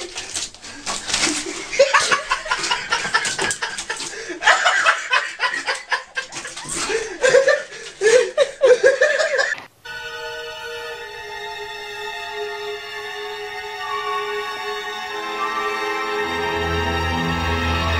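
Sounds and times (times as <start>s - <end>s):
person laughing: 1.4s - 9.6s
music with held tones: 9.8s - 17.9s.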